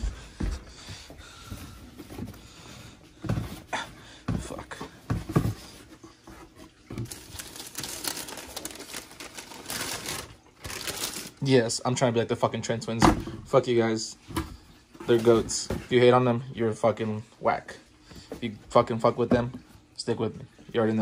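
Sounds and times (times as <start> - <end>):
packing paper crinkling: 6.7 - 11.6.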